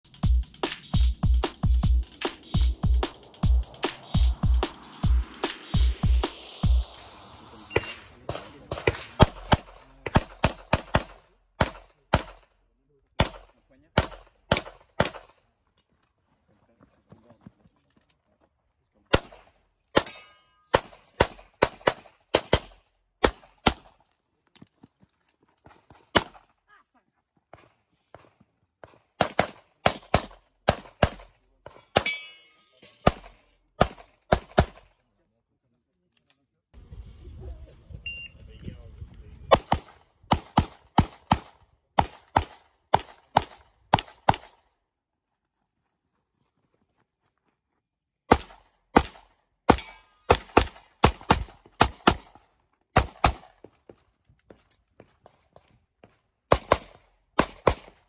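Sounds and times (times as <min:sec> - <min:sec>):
pistol shots: 0:07.7 - 0:12.4, 0:13.2 - 0:15.3, 0:19.1 - 0:23.9, 0:26.1 - 0:26.4, 0:28.8 - 0:31.3, 0:33.0 - 0:34.9, 0:39.5 - 0:44.6, 0:48.3 - 0:52.4, 0:53.0 - 0:53.6, 0:56.5 - 0:58.0.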